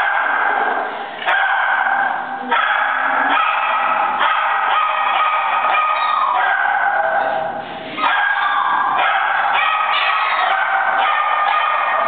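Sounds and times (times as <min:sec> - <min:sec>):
dog yipping and howling: 0:02.5 - 0:07.4, 0:08.0 - 0:12.0.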